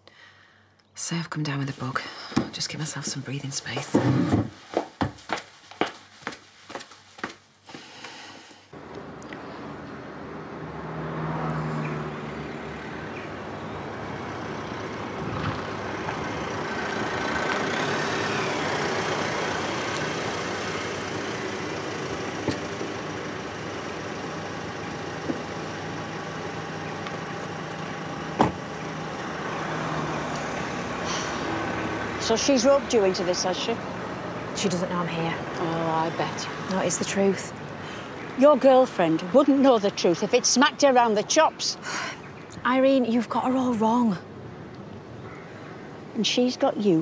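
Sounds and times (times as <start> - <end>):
road noise: 0.0 - 47.0
car engine running: 12.3 - 37.3.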